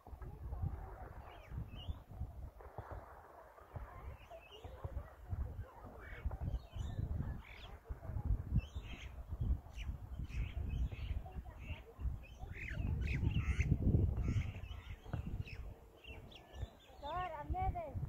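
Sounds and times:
birds chirping: 0:03.8 - 0:17.9.

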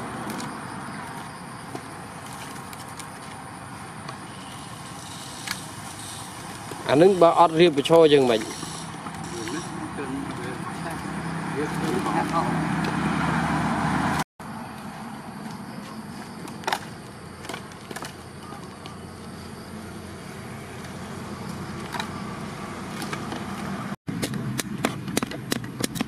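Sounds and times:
steady background noise: 0:00.0 - 0:26.0
logs clunking as stacked: 0:16.3 - 0:19.0
machete chopping kindling on board: 0:23.0 - 0:26.0.

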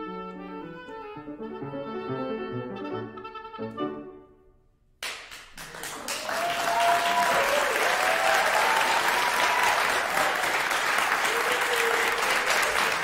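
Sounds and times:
audience applause: 0:05.1 - 0:13.0.

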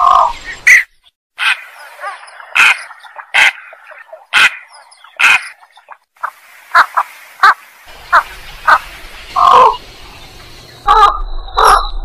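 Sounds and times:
heron harsh croaking calls: 0:00.0 - 0:05.6, 0:09.4 - 0:09.8.

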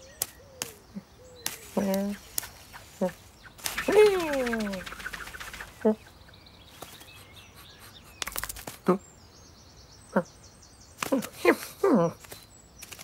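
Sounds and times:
quick run of clicks: 0:03.6 - 0:05.9, 0:08.2 - 0:08.8, 0:12.2 - 0:13.0.

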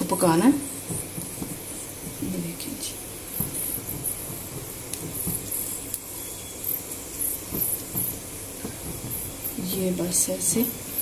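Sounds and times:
high hiss: 0:00.0 - 0:11.0.

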